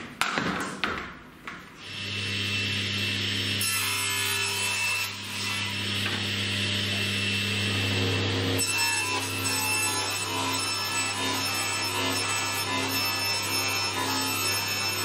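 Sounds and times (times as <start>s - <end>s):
power saw cutting a board: 1.8s - 15.0s.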